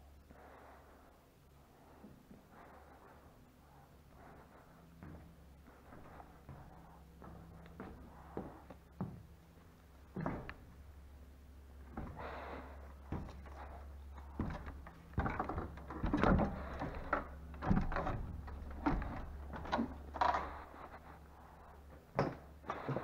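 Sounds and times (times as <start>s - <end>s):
steady low hum: 0.0s - 23.0s
feet and hands on wooden ladder: 10.0s - 10.9s, 11.8s - 23.0s.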